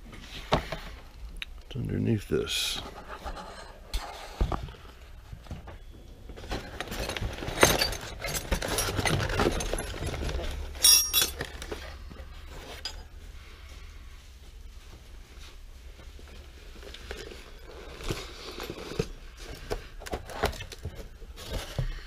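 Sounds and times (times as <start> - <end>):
small hard objects clinking: 6.6 - 11.9
paper and cardboard rustling: 14.6 - 22.0.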